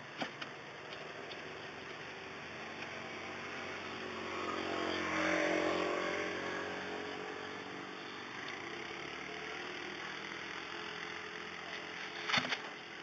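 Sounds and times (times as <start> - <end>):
low street hum: 0.0 - 13.0
motorbike passing by: 2.0 - 10.2.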